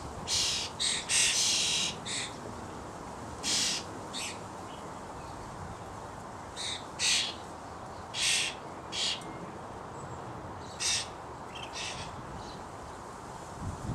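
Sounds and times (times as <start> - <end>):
starling harsh rasping calls: 0.3 - 2.4, 3.4 - 4.4, 6.6 - 7.4, 8.1 - 9.2, 10.7 - 12.2.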